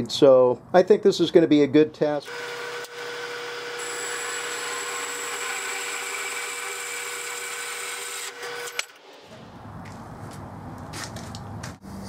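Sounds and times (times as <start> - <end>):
bandsaw cutting metal: 2.2 - 9.2.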